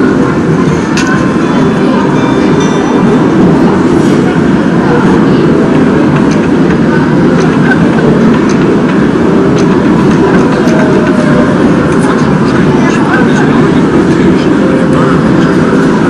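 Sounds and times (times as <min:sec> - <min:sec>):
restaurant din: 0:00.0 - 0:16.0.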